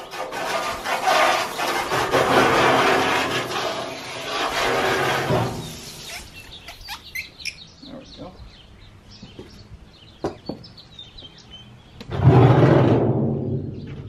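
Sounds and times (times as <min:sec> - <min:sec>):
water spray hissing on metal: 0:00.0 - 0:06.6.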